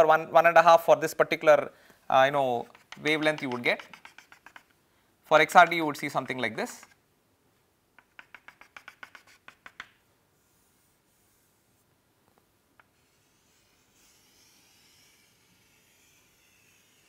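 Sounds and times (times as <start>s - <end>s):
chalk scratching on chalkboard: 2.5s - 4.8s, 8.0s - 11.8s, 13.0s - 17.0s
chalk tapping on chalkboard: 2.6s - 4.8s, 5.5s - 7.0s, 8.0s - 10.0s.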